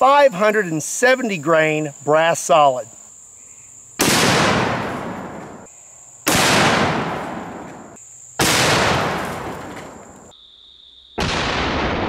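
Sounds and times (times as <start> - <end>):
rifle shots with rolling echo: 4.0 - 5.7, 6.3 - 10.3.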